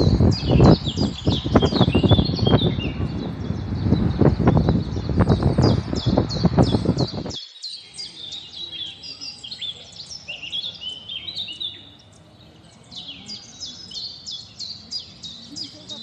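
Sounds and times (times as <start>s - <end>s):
loud low rumbling: 0.0s - 7.4s
birds chirping: 0.0s - 16.0s.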